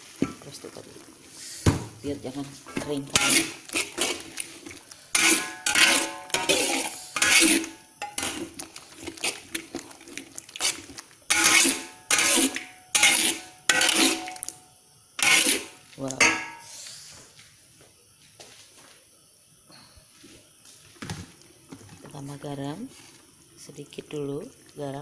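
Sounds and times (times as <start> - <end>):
metal spatula scraping a wok: 3.0 - 4.5, 5.1 - 9.4, 10.6 - 14.5, 15.2 - 16.7.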